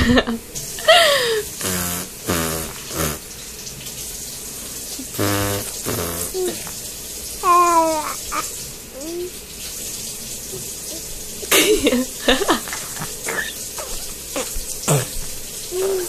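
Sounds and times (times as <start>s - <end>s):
baby blowing raspberries: 1.2s - 3.3s, 5.0s - 6.8s, 7.4s - 9.4s, 10.5s - 16.0s
high-pitched baby vocal sound: 5.0s - 6.8s, 7.4s - 9.4s, 12.7s - 16.0s.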